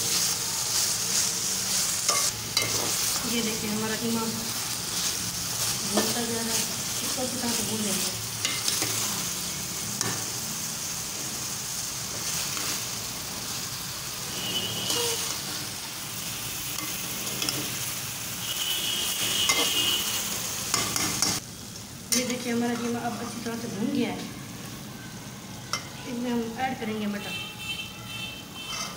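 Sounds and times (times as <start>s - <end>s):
meat sizzling in oil: 0.0s - 27.2s
spoon scraping pot: 28.6s - 28.9s.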